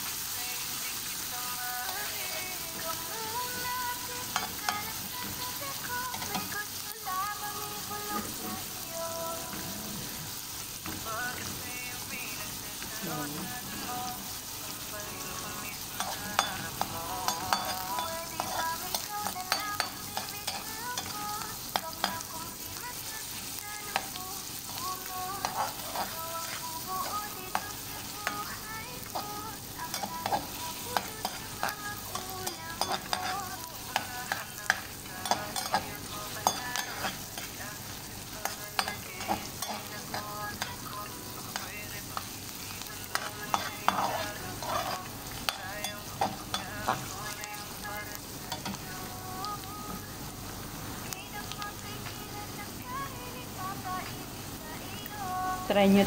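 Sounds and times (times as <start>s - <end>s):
onions sizzling in hot oil: 0.0s - 56.0s
metal spoon scraping a pan: 16.0s - 22.2s, 25.4s - 28.5s, 29.1s - 37.6s, 38.4s - 40.8s, 41.5s - 47.4s.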